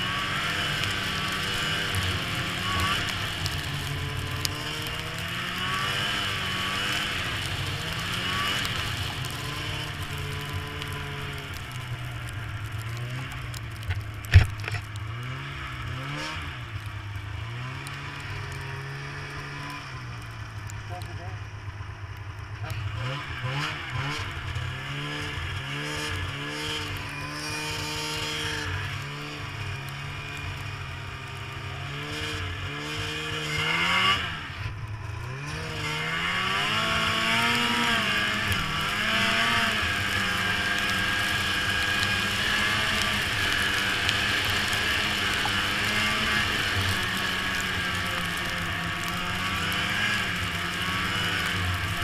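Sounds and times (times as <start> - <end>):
snowmobile engine revving: 0.0 - 13.6, 14.2 - 21.6, 22.5 - 52.0.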